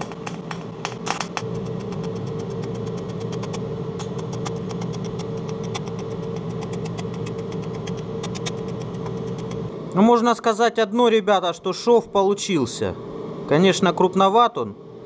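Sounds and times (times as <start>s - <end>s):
welding arc buzzing and crackling: 0.0s - 9.7s.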